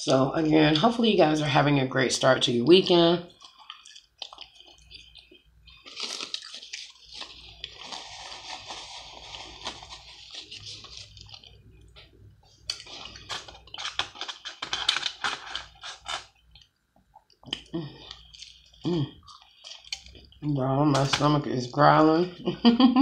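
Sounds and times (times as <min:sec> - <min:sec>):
biting and chewing: 0:03.3 - 0:20.4
foil crinkling: 0:05.8 - 0:11.5, 0:12.8 - 0:16.4
paper napkin rustling: 0:06.0 - 0:11.4.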